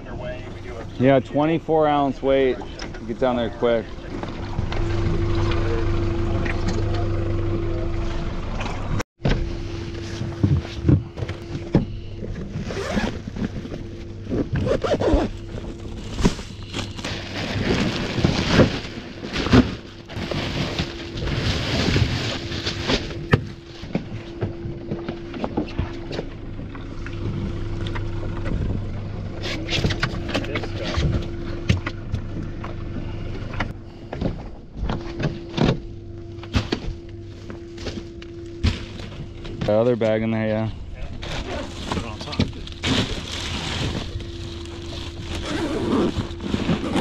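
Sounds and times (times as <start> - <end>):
outboard motor running: 0.0 - 47.0
bag zipping and rustling: 12.6 - 13.3, 14.5 - 18.4, 43.1 - 47.0.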